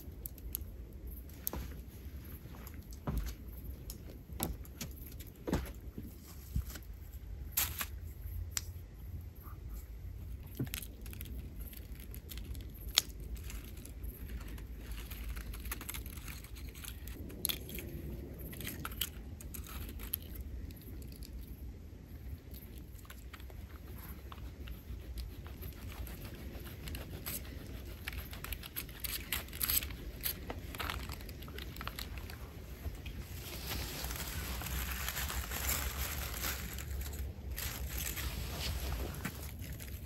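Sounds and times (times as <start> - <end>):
foil crinkling and rustling: 10.6 - 17.3, 25.8 - 40.0.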